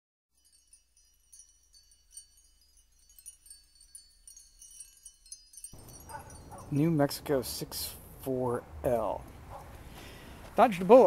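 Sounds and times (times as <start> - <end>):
faint high chime tones: 0.3 - 7.1.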